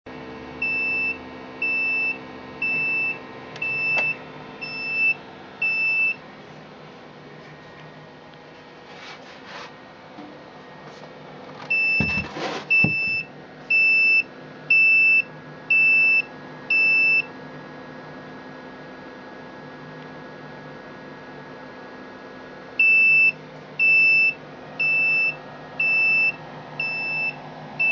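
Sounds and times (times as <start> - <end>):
steady electrical hum: 0.1 - 27.9
electronic alarm beeping: 0.6 - 6.2, 11.7 - 17.3, 22.8 - 27.9.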